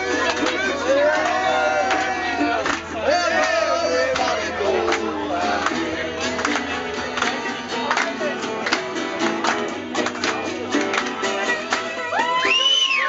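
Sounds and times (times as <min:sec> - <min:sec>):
strummed acoustic guitar: 0:00.0 - 0:12.6
plucked string instrument: 0:00.0 - 0:12.8.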